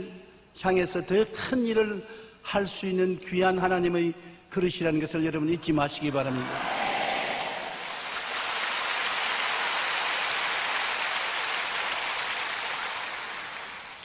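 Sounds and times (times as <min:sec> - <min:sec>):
congregation applauding: 0:06.5 - 0:14.0.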